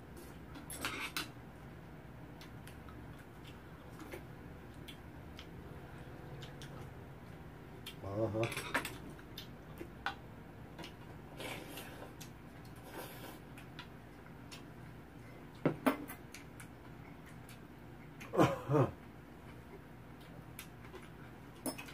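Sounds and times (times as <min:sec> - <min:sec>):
utensils clinking on bowls: 0:21.6 - 0:21.9.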